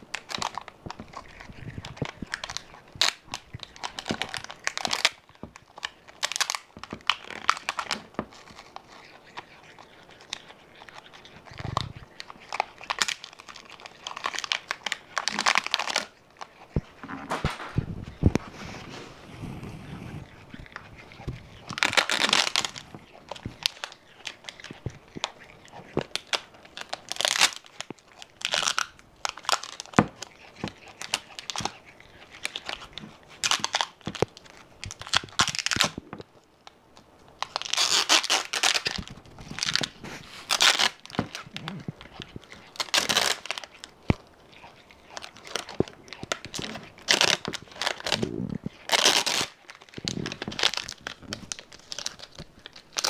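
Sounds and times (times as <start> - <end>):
packing tape tearing: 11.6 - 16.1, 21.7 - 24.0, 26.0 - 30.3, 34.9 - 36.1, 37.4 - 41.8, 42.5 - 43.7, 45.5 - 53.0.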